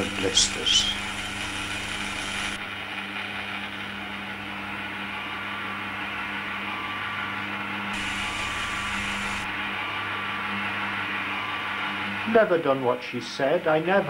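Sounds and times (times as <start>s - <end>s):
motor whirr: 0.0s - 2.6s, 8.0s - 9.5s
constant low hum: 8.0s - 10.6s.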